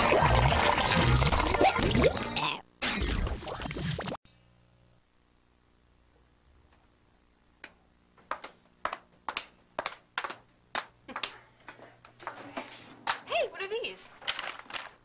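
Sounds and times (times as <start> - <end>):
footsteps on a hard floor: 7.6 - 13.3.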